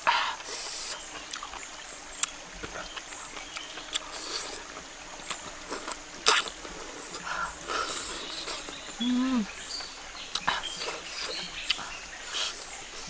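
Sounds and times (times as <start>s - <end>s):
person chewing: 0.9s - 1.6s, 2.2s - 9.5s
lip smacks: 2.2s - 9.5s, 10.3s - 12.8s
person humming: 9.0s - 9.5s.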